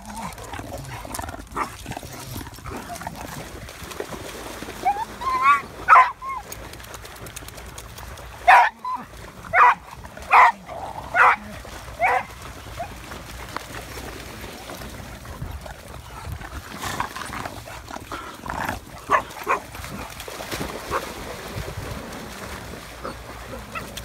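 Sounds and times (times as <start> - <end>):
dogs barking: 5.4 - 6.2, 8.4 - 8.8, 9.5 - 12.3, 19.0 - 19.7.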